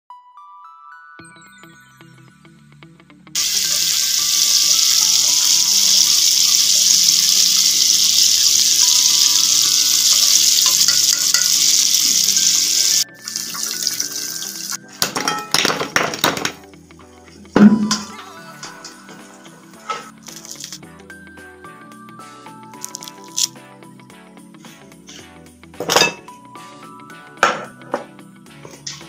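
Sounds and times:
chicken deep-frying in oil: 3.4s - 14.8s.

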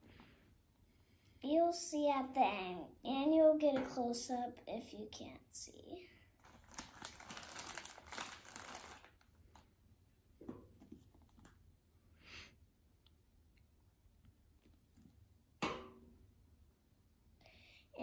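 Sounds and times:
plastic bag crinkling: 6.4s - 9.6s.

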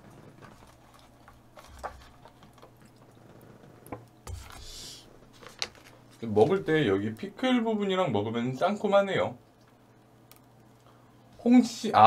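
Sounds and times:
quiet chewing: 0.1s - 4.9s.

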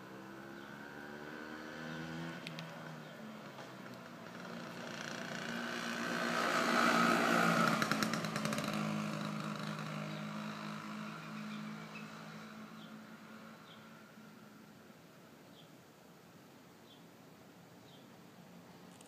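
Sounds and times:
scooter engine passing by: 0.0s - 14.4s.

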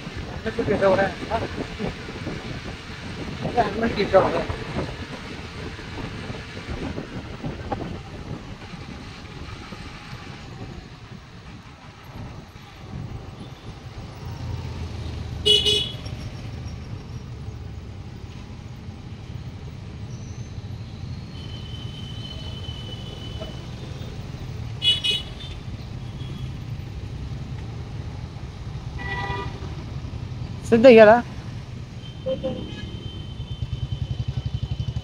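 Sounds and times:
scooter engine and road rumble: 0.0s - 35.0s
vehicle horn tooting: 15.4s - 16.0s, 29.0s - 29.7s, 32.0s - 34.8s.

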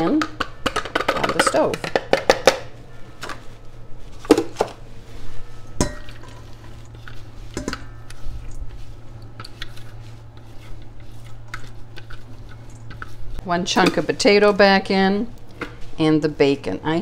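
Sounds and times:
low hum: 2.8s - 16.1s.

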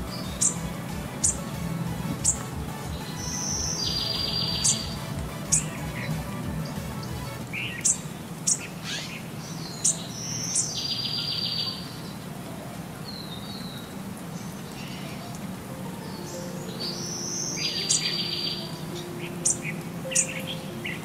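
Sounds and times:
owl buzzy trill: 0.0s - 9.1s
owl chirping: 3.0s - 6.1s.

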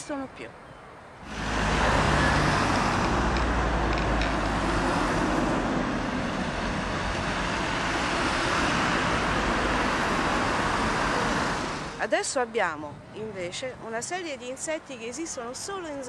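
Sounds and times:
road traffic noise: 0.0s - 16.0s
low engine hum: 1.2s - 12.0s.

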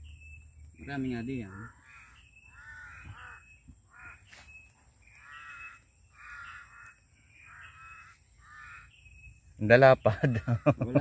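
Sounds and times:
crows cawing: 1.2s - 9.1s, 10.2s - 11.0s.

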